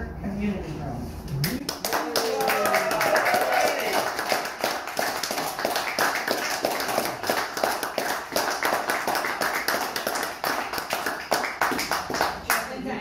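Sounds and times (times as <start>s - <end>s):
audience applauding: 1.6s - 12.6s.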